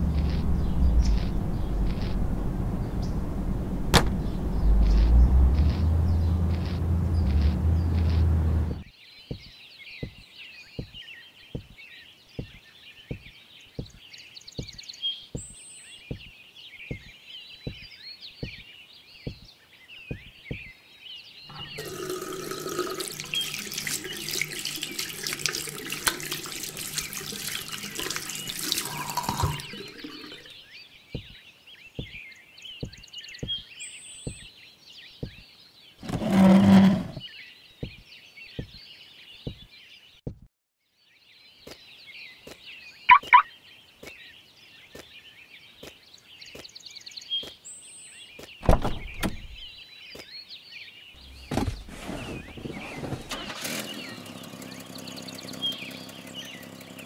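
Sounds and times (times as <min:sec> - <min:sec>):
tap running into a sink: 0:21.5 - 0:30.5.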